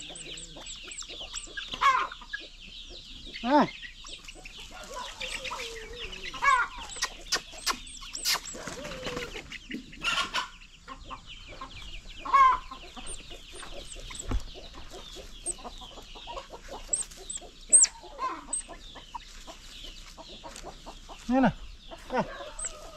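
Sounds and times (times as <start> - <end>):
high-pitched chirps: 0.0 - 1.6, 6.8 - 8.6, 13.0 - 14.4, 16.9 - 18.8
chickens clucking: 0.0 - 22.9
sharp clicks: 6.8 - 8.6, 13.1 - 14.5.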